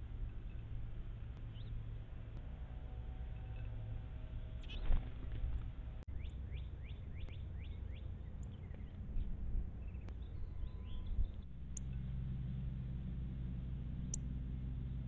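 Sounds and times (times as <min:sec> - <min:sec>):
wing flutter: 0:03.3 - 0:06.0
bird whistling song: 0:09.9 - 0:12.0.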